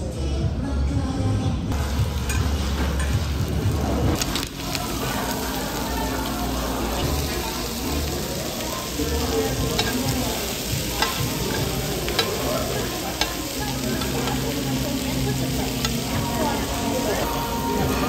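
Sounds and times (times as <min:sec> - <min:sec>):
meat sizzling on grill plate: 0:01.8 - 0:18.0
metal tongs clicking on pan: 0:09.7 - 0:14.7, 0:15.7 - 0:16.1.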